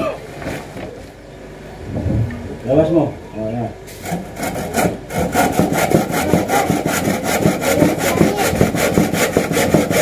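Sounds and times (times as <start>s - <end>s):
handsaw cutting wood: 4.0s - 10.0s.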